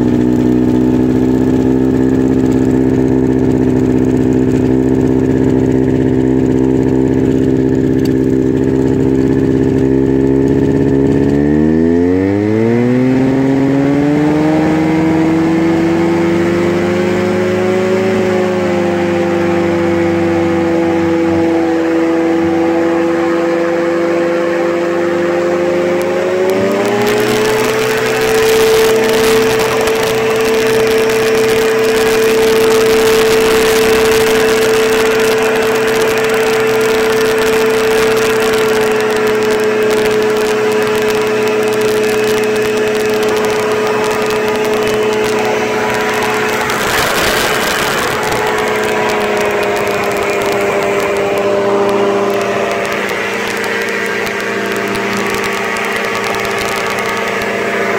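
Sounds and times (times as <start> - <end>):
light aircraft engine running: 0.0 - 57.9
wind rush: 26.4 - 57.7.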